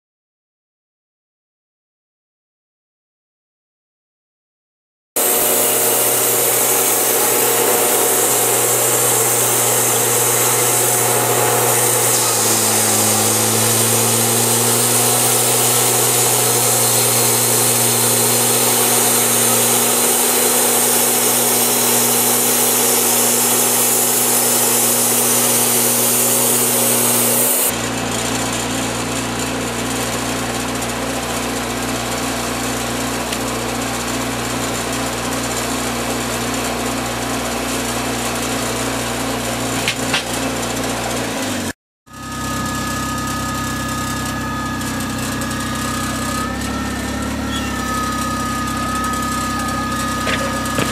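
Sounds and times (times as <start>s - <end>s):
band blade sawing through log: 5.2s - 27.8s, 38.3s - 41.7s, 47.5s - 50.9s
sawmill engine droning: 5.2s - 50.9s.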